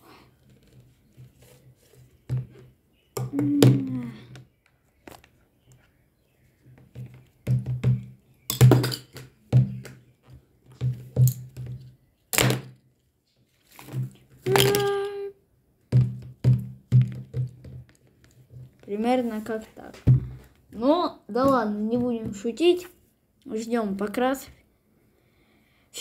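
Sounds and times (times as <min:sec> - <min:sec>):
bottles and markers knocking together: 0:06.8 - 0:10.0, 0:10.7 - 0:12.8, 0:13.8 - 0:15.0, 0:15.9 - 0:18.8, 0:21.4 - 0:22.9.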